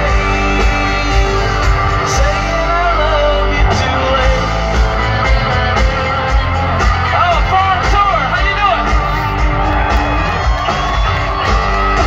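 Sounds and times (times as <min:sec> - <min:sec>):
person singing: 0:00.0 - 0:07.9
heavy bass: 0:00.0 - 0:12.0
live country band playing: 0:00.0 - 0:12.0.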